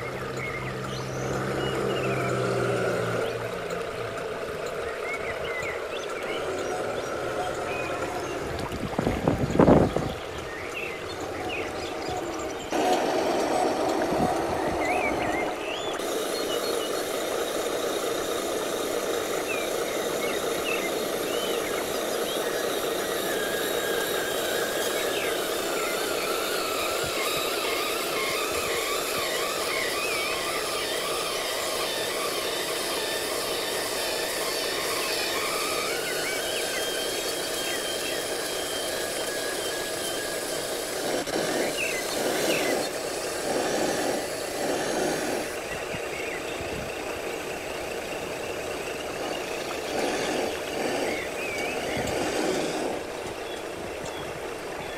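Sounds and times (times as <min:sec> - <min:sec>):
hydraulic mechanical whirring: 0:00.0 - 0:54.9.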